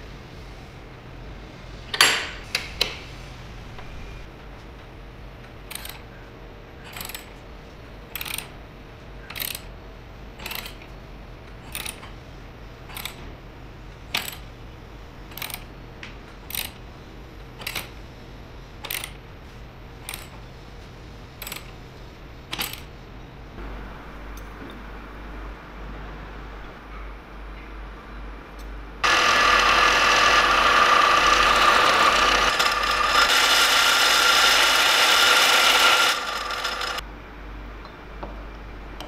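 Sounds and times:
metal mechanism clicking: 8.2 - 8.5, 9.3 - 9.7, 10.4 - 10.9, 11.6 - 12.1, 12.9 - 13.2, 15.3 - 15.7, 17.6 - 17.9, 18.8 - 19.2, 20.1 - 20.4, 21.4 - 21.7, 22.5 - 22.9.

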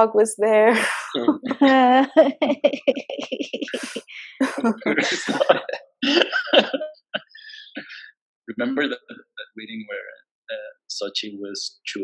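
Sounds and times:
indistinct voices: 0.0 - 12.0
breathy laughter: 4.6 - 8.0
person coughing: 4.6 - 8.0.

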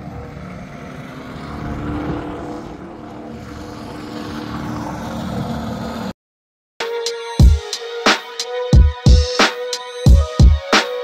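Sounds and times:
engine humming steadily: 0.0 - 6.1.

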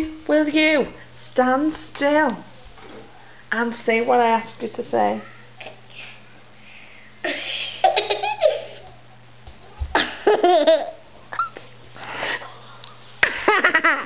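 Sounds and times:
girl laughing and giggling: 7.2 - 8.9, 9.9 - 12.5, 13.2 - 14.0.

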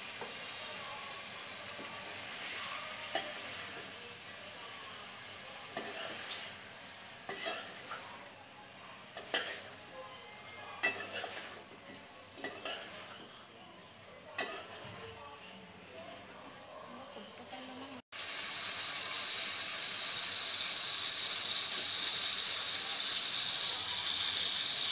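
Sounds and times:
food stirred in metal pot: 5.7 - 8.3, 10.8 - 13.2, 14.4 - 14.9.

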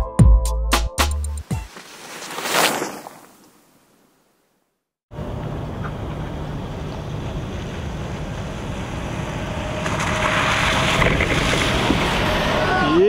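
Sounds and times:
truck engine and tyres on wet road: 5.1 - 13.0
wind rumble on microphone: 9.0 - 12.9.

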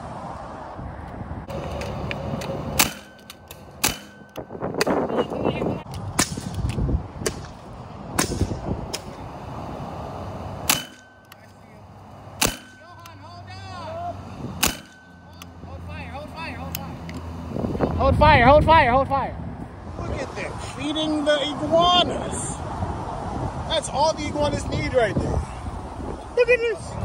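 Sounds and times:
air rifle shots: 2.7 - 5.0, 8.2 - 9.2, 10.6 - 11.2, 12.4 - 13.2, 14.6 - 15.0.

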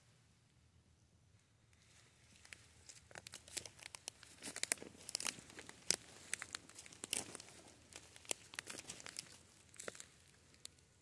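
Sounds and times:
footsteps crunching through leaves: 2.8 - 10.3.

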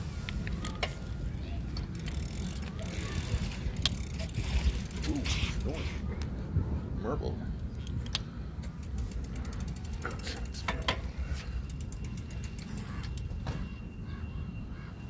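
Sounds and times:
low rumble of riding: 0.0 - 15.0
bicycle freewheel ticking: 0.5 - 5.8, 8.5 - 13.3.

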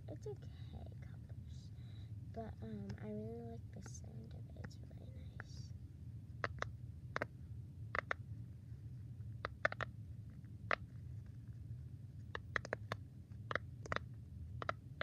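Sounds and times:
fidget toy bubbles popping: 12.4 - 14.0.

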